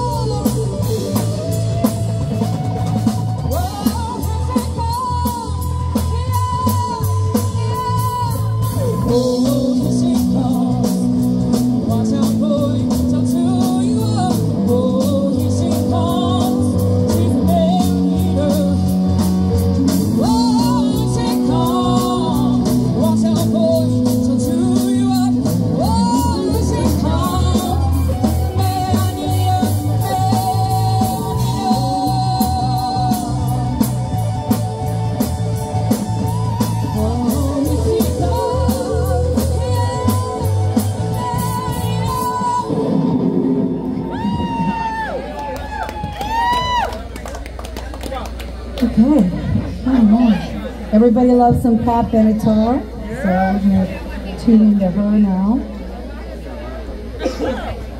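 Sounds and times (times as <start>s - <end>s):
woman singing: 0.0s - 34.0s, 36.3s - 43.1s
electric guitar: 0.0s - 55.1s
bass guitar: 0.0s - 57.9s
drums: 0.0s - 57.9s
keyboards: 0.0s - 57.9s.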